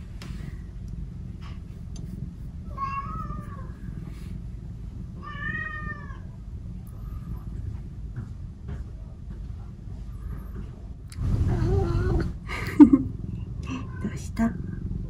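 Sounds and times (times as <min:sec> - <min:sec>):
cat meowing: 0:02.7 - 0:03.8, 0:05.2 - 0:07.5.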